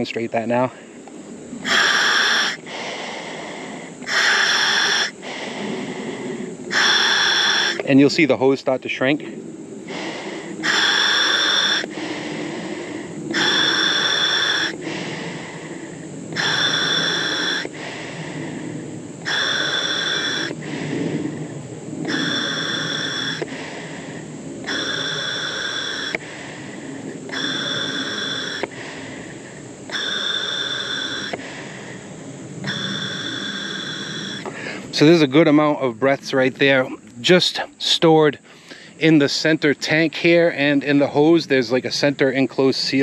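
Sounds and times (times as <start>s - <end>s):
scuba regulator hissing breaths: 1.6s - 8.0s, 9.8s - 35.2s.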